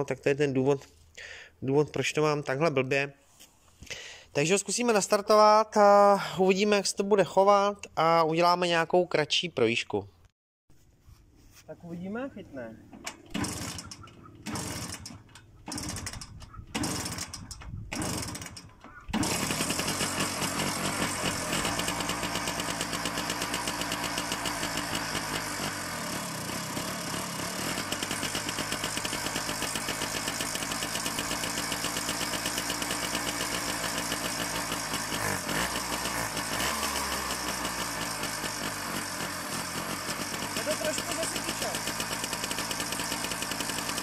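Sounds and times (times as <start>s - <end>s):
two-stroke motorcycle engine running: 13.3s - 44.0s.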